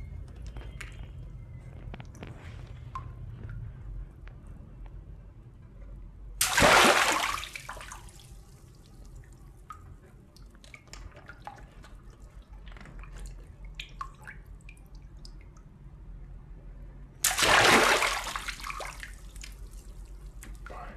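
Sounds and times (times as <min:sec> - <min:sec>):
water balloon bursting: 0:06.4 - 0:07.7, 0:17.2 - 0:18.6
water dripping and splashing: 0:06.4 - 0:15.7, 0:17.2 - 0:20.7.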